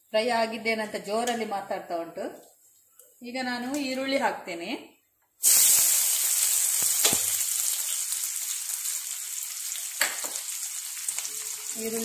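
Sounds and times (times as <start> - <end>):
onions sizzling in hot oil: 5.4 - 12.0.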